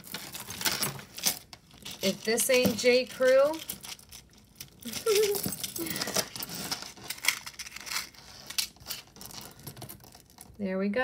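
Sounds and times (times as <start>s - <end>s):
metal chain clinking: 0.0s - 8.0s.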